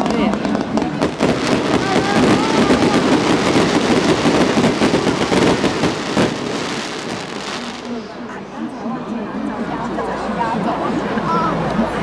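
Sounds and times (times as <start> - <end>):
fireworks crackling: 0.0 - 8.4.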